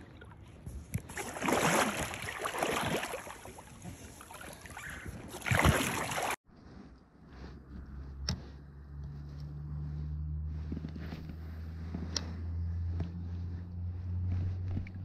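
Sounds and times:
water splashing in a creek: 0.0s - 6.4s.

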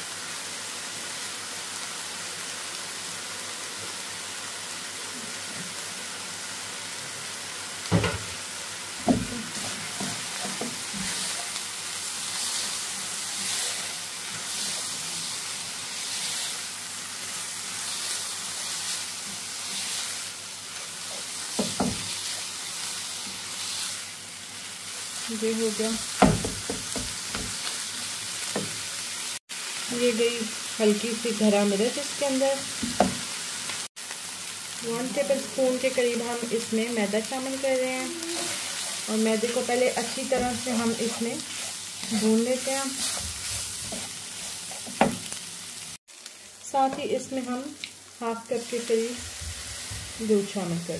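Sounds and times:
meat sizzling in a frying pan: 0.0s - 50.9s
spatula scraping a pan: 9.2s - 16.7s, 38.4s - 45.4s
spatula knocking on pan: 21.5s - 22.1s, 26.2s - 27.6s, 32.8s - 33.2s, 44.9s - 45.3s.

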